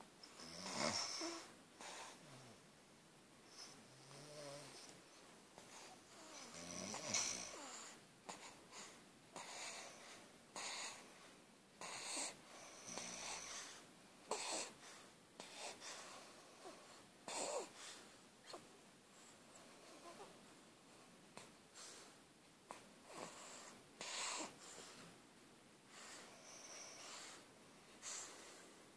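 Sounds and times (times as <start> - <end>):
wheezy sleep breathing: 0.2 - 2.6, 5.6 - 20.3, 21.0 - 25.2, 25.9 - 28.9
deep snores: 0.4 - 1.5, 6.2 - 8.0, 11.8 - 13.5.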